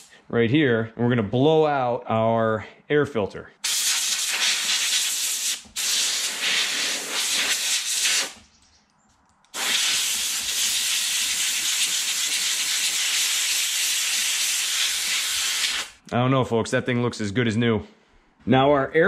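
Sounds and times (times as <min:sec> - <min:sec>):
compressed air hissing from blow gun: 0:03.6 - 0:08.4, 0:09.6 - 0:16.0.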